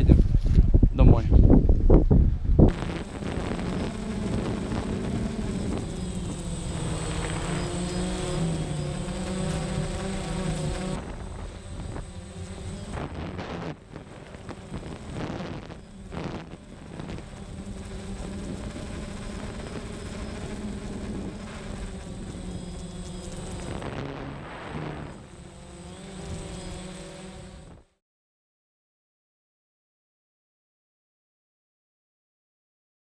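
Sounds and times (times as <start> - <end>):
wind on microphone: 0.0 - 25.3
drone propeller motors buzzing: 2.7 - 28.0.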